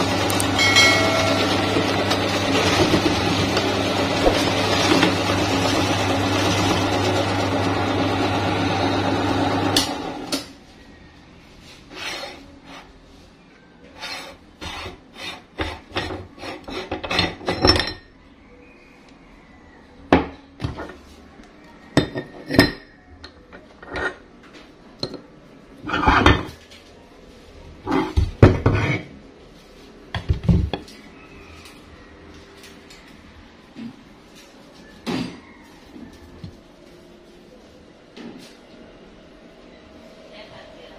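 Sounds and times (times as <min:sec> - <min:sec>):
meat grinder motor humming: 0:00.0 - 0:10.3.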